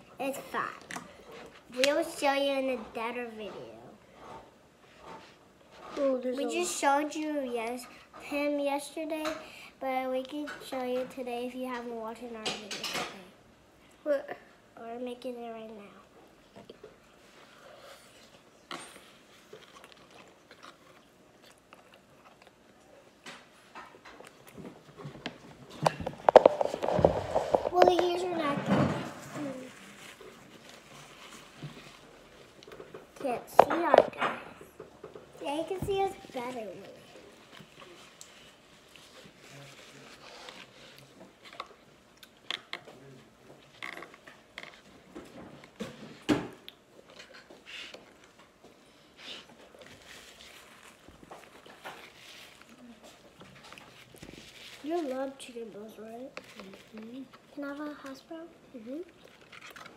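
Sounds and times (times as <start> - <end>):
children chewing: 0.4 - 1.8, 16.1 - 55.5, 56.2 - 59.9
plastic forks scraping paper cups: 25.8 - 28.7.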